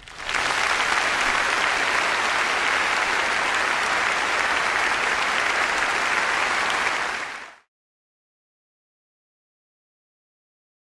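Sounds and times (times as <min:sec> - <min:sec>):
large audience applauding: 0:00.0 - 0:07.7.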